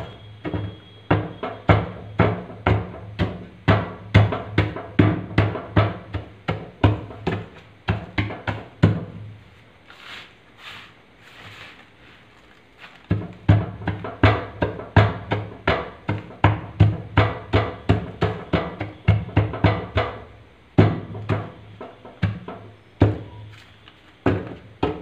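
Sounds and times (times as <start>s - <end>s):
soft sweeping swishes: 9.9s - 12.4s.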